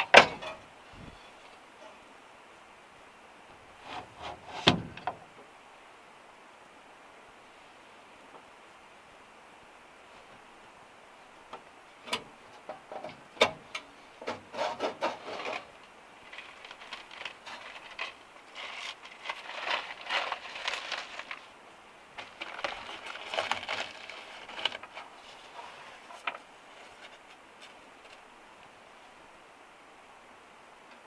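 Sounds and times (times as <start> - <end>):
paper tearing and crumpling: 16.3 - 21.5, 22.2 - 25.5.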